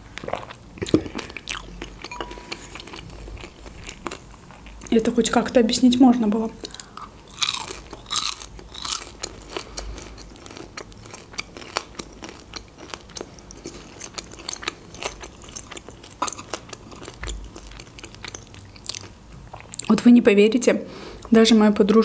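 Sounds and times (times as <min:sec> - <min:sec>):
crunching bites: 0:06.7 - 0:09.6.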